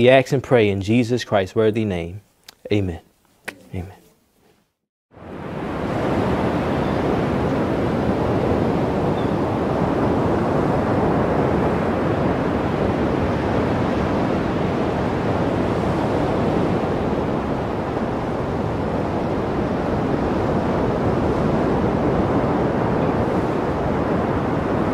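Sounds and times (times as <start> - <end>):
ocean waves breaking: 5.2 - 24.9.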